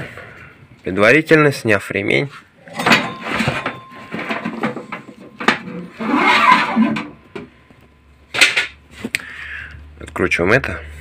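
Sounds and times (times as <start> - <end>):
rubber belt rubbing and rattling: 4.8 - 7.0.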